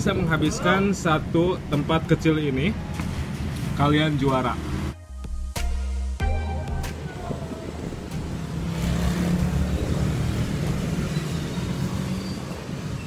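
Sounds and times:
vehicle engine and tyres passing: 0:02.4 - 0:05.0, 0:07.0 - 0:13.0.

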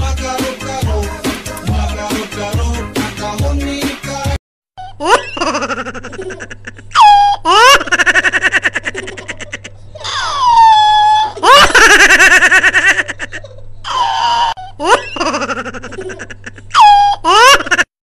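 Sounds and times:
high-pitched voice laughing and squealing: 0:04.8 - 0:17.9.

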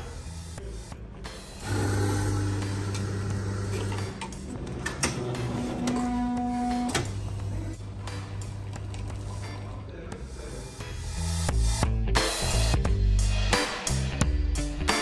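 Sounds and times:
coffee machine motor hum: 0:01.6 - 0:04.7, 0:07.0 - 0:09.9.

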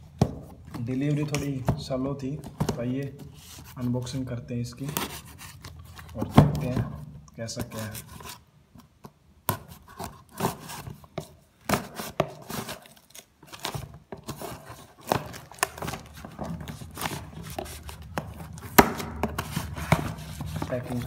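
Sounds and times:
cardboard and tape rustling tearing: 0:09.5 - 0:21.0.

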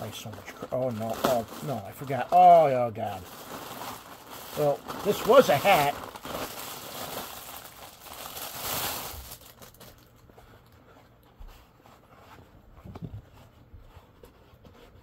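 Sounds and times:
packaging rustling and crinkling: 0:00.0 - 0:10.8.

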